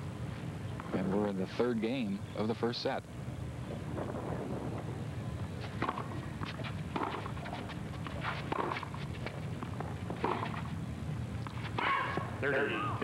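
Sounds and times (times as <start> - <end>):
tennis ball bouncing: 5.8 - 10.7
racquet striking tennis ball: 8.2 - 8.9.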